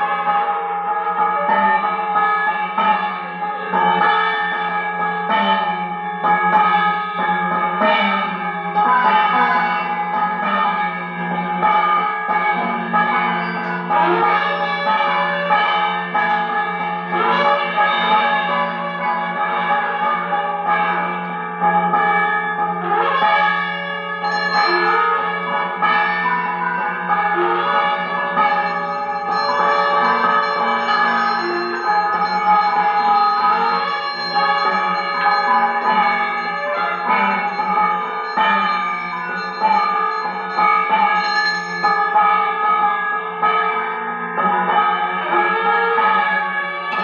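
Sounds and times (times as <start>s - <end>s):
bells ringing: 0.0s - 21.4s, 24.2s - 43.5s
gong ringing: 24.2s - 25.4s, 28.2s - 42.6s.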